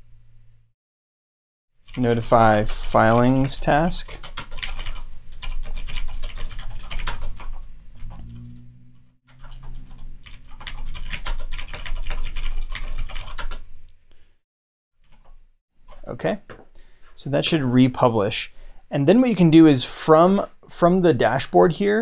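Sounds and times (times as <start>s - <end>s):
typing on computer keyboard: 4.1s - 8.2s, 9.3s - 13.6s.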